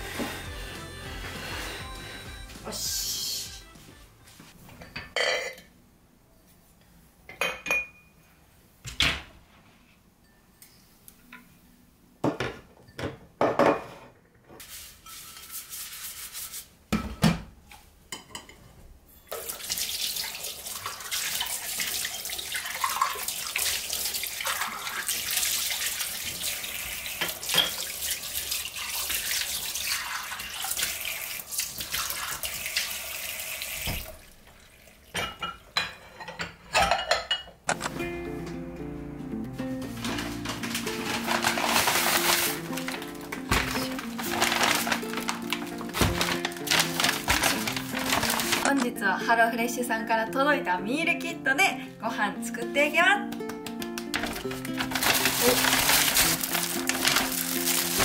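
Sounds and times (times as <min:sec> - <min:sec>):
dishes knocking and clinking: 0:04.7 - 0:05.7, 0:07.3 - 0:08.1, 0:12.2 - 0:14.1, 0:16.9 - 0:17.5, 0:35.2 - 0:37.8
tap water running into sink: 0:19.3 - 0:35.2.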